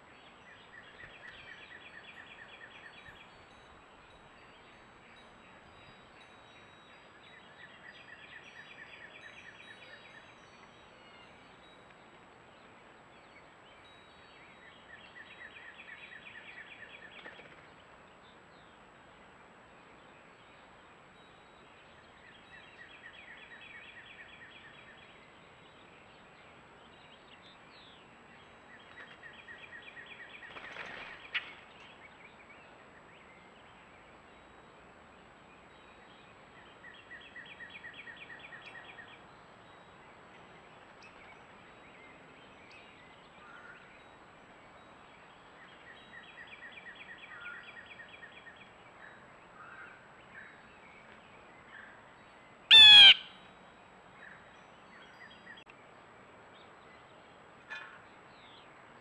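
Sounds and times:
harsh bird call: 0:52.7 - 0:53.4
songbird trilling: 0:52.7 - 0:53.4.

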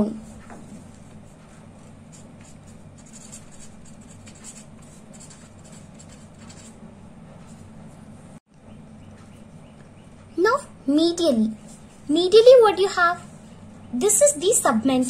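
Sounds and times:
pen scratching on paper: 0:00.3 - 0:06.8.

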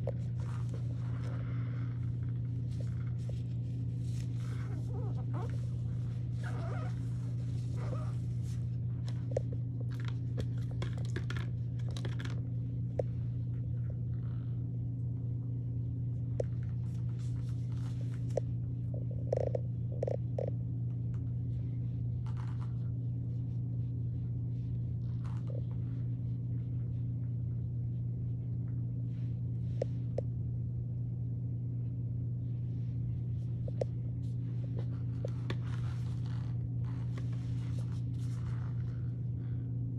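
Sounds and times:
low hum: 0:00.0 - 0:39.9
brush rustling through hair: 0:00.2 - 0:09.2.

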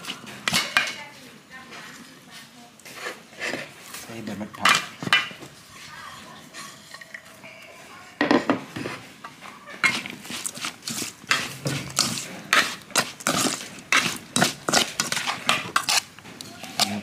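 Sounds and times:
spoon scraping a metal bowl: 0:02.8 - 0:04.0, 0:04.6 - 0:07.4, 0:08.7 - 0:17.0.

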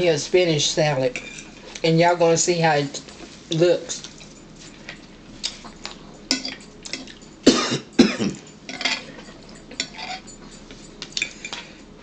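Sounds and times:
person coughing: 0:07.4 - 0:08.5
fork scraping on a plate: 0:08.7 - 0:11.8.

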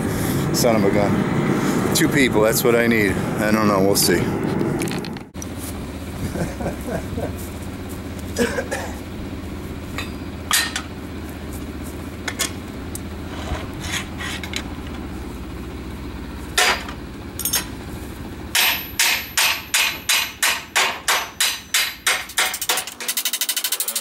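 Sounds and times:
steady low hum: 0:00.0 - 0:24.0
steel plate clanking: 0:16.6 - 0:17.7, 0:18.5 - 0:24.0
hand hammer striking metal plate: 0:18.5 - 0:24.0.

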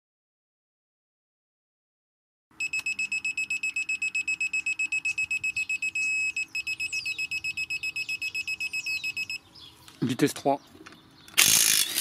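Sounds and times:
rapid high beeps: 0:02.6 - 0:09.4
steady beep tone: 0:02.6 - 0:09.4.

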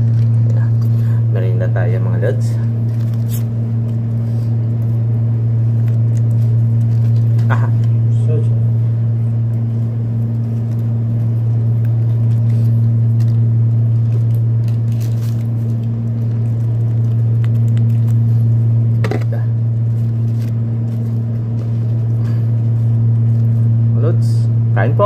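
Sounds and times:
plastic crackle: 0:00.0 - 0:08.4, 0:09.0 - 0:23.8
air conditioner humming: 0:00.0 - 0:25.0
sachets rustling: 0:02.8 - 0:04.0, 0:10.2 - 0:23.6.

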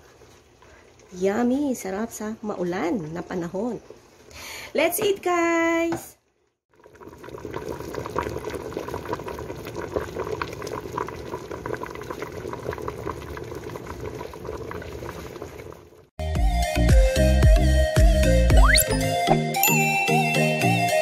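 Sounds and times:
pot boiling and bubbling: 0:00.0 - 0:04.3, 0:06.7 - 0:16.2.

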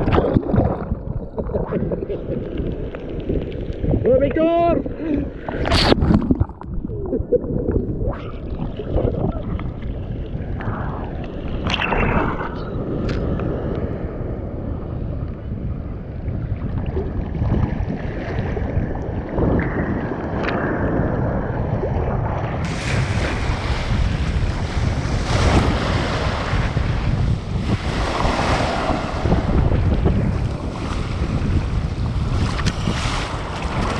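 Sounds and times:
water splashing over microphone: 0:00.0 - 0:33.9
ocean surf breaking: 0:22.6 - 0:33.9.

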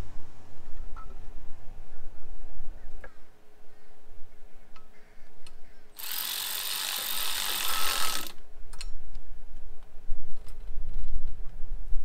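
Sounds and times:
cordless power tool running: 0:06.0 - 0:08.4.

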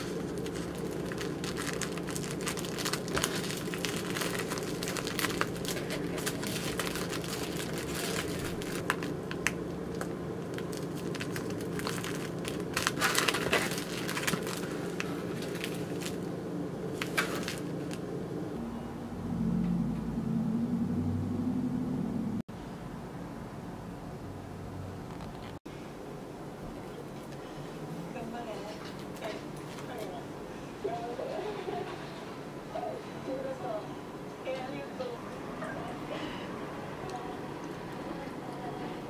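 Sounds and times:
plastic wrapper crinkling: 0:00.0 - 0:16.3, 0:17.0 - 0:18.0
steady low hum: 0:00.0 - 0:39.0.

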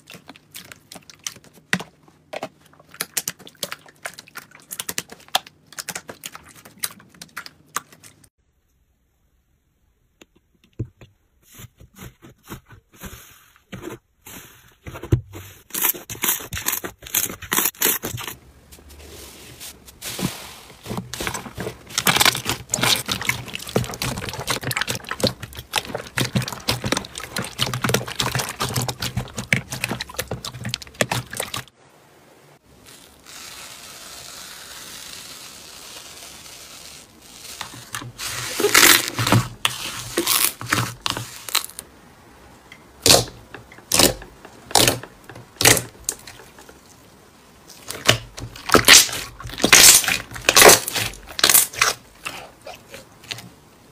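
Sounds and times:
slime crackling and squishing: 0:00.0 - 0:08.3, 0:15.4 - 0:31.7, 0:32.6 - 0:41.8, 0:43.0 - 0:47.1, 0:47.7 - 0:53.5
sharp slime pops: 0:43.0 - 0:45.0.

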